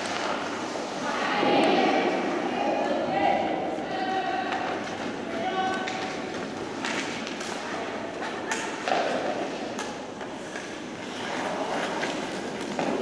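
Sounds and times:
hockey sticks and puck clacking: 0.0 - 0.9, 4.4 - 13.0
skates scraping ice: 4.9 - 13.0.

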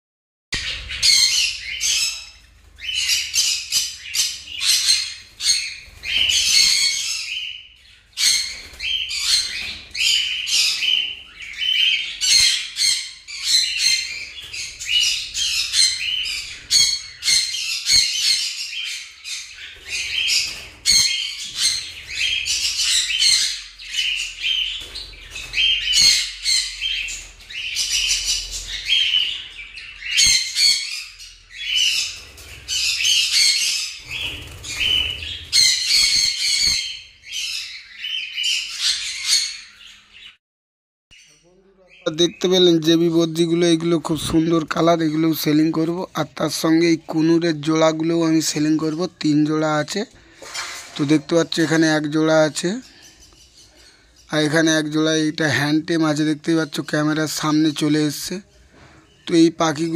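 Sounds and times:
budgerigars chattering: 0.6 - 40.4.

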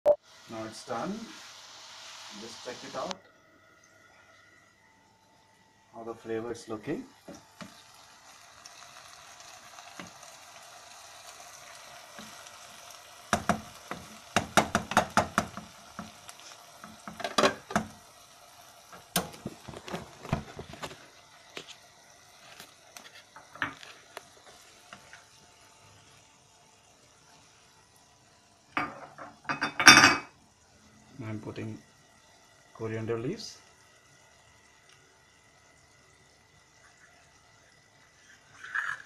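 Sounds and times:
vegetables sizzling in a wok: 0.2 - 39.0
spatula knocking against pan: 13.3 - 15.7.

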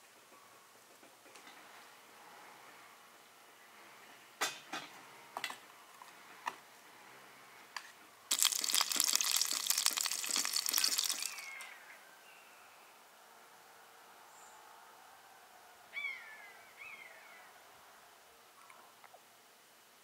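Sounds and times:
crackly hiss of pouring: 8.3 - 11.7.

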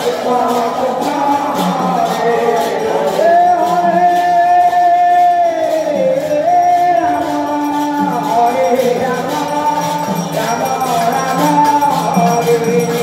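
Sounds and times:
instrumental accompaniment: 0.0 - 13.0
person singing devotional song: 0.0 - 13.0.

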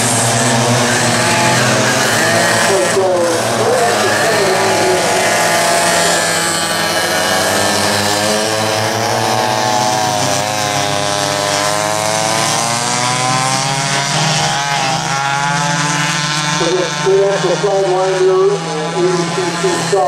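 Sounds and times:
kart engines howling past: 0.0 - 20.0.

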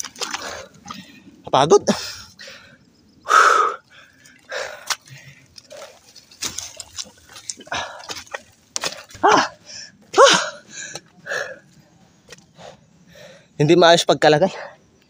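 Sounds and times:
man breathing hard: 0.3 - 5.9, 12.5 - 13.6.

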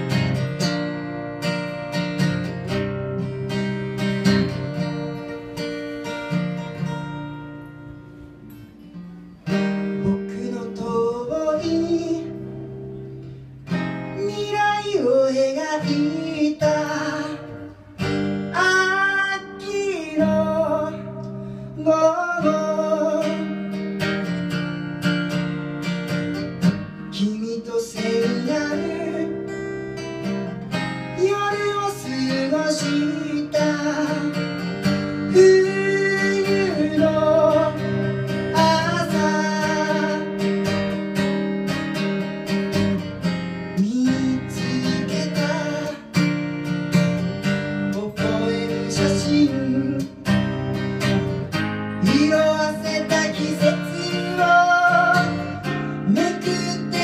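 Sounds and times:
acoustic guitar strumming: 0.0 - 57.0
man singing: 9.8 - 12.8, 14.0 - 23.7, 27.1 - 29.7, 31.1 - 40.5, 43.7 - 46.4, 47.7 - 51.2, 52.0 - 57.0.

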